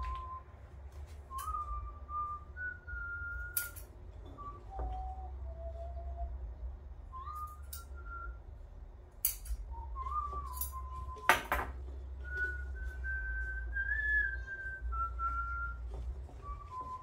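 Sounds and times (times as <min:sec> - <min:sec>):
person whistling a slow tune: 0:00.0 - 0:00.6, 0:01.2 - 0:08.4, 0:09.3 - 0:11.6, 0:12.2 - 0:17.0
glass and metal clinking: 0:10.5 - 0:11.8.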